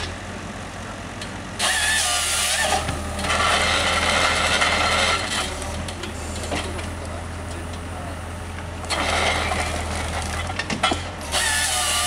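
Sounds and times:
engine running: 0:00.0 - 0:12.0
logs creaking and scraping: 0:02.4 - 0:06.9, 0:08.8 - 0:12.0.

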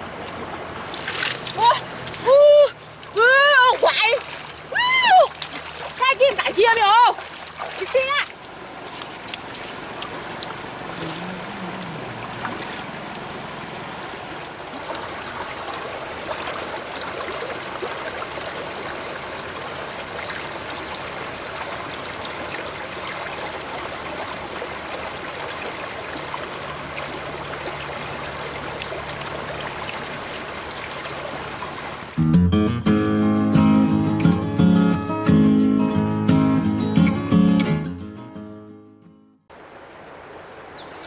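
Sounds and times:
water trickling over stones: 0:00.0 - 0:32.2.

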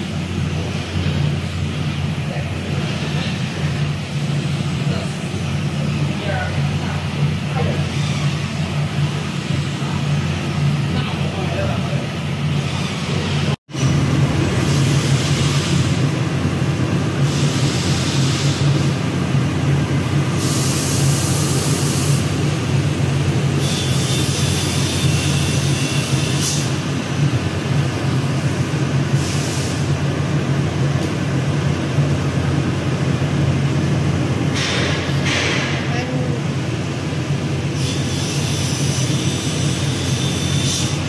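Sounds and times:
loud hiss: 0:17.2 - 0:19.0, 0:20.3 - 0:22.4.

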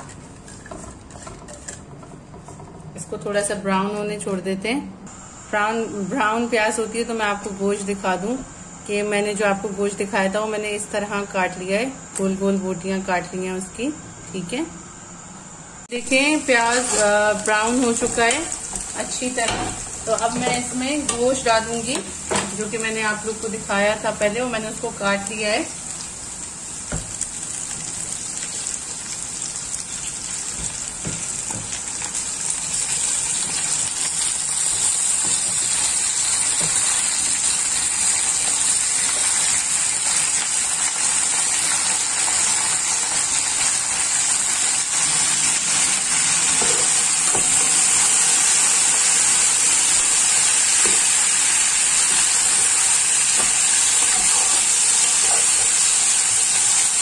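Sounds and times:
meat sizzling in hot oil: 0:16.0 - 0:57.0.

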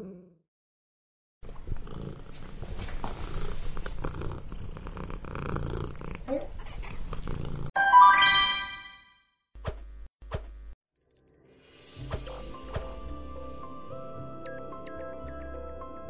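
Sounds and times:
cat purring: 0:01.5 - 0:07.7
bright chime: 0:07.8 - 0:09.2, 0:11.0 - 0:13.8.

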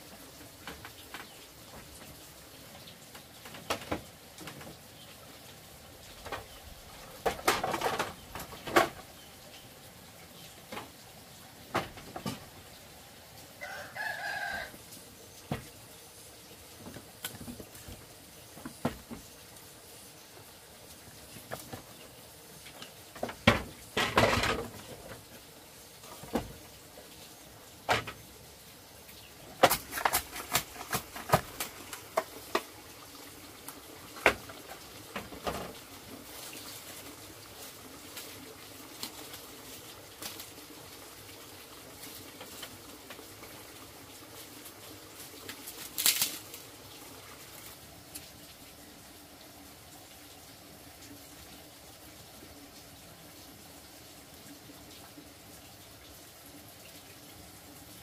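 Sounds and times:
knocks and clatter: 0:07.2 - 0:09.1, 0:23.2 - 0:25.2
chicken calling: 0:13.6 - 0:14.8.

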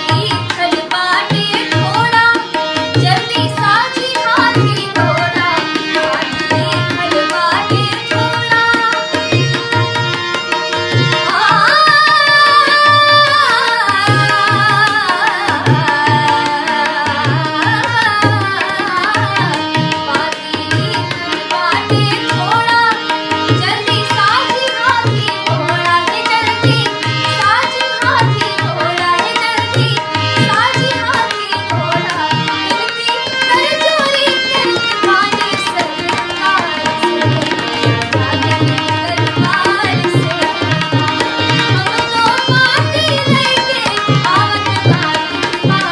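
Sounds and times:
woman singing: 0:00.0 - 0:45.9.

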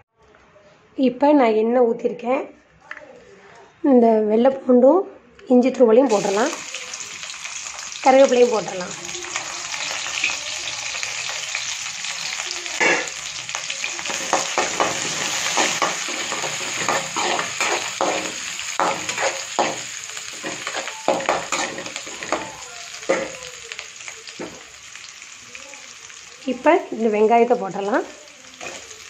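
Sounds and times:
food sizzling in oil: 0:06.1 - 0:29.0
spoon scraping and knocking pan: 0:14.0 - 0:23.4.

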